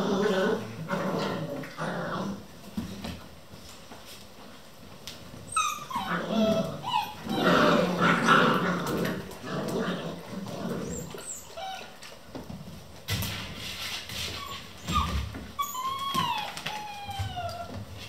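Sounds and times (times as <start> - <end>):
puppies yipping and growling: 5.4 - 12.2, 14.2 - 18.0.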